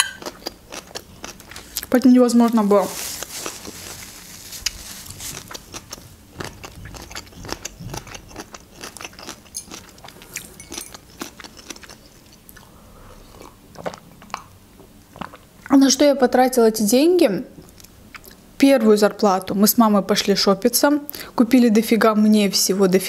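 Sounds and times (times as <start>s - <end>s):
person chewing food: 0.0s - 1.9s, 3.0s - 15.7s.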